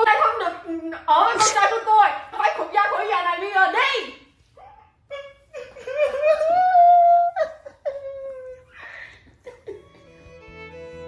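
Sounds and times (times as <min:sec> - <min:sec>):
woman crying and wailing: 0:04.6 - 0:10.0
soft violin music: 0:09.8 - 0:11.0.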